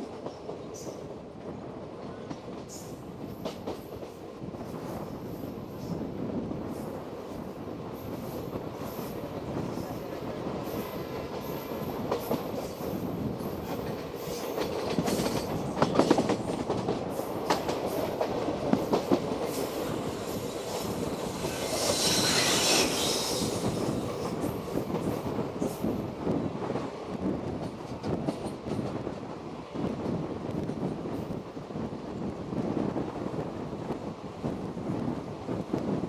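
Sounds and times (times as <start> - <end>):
train rumbling on track: 0.0 - 36.0
wheels clacking over rail joints: 13.4 - 25.2
loud hiss: 21.4 - 24.0.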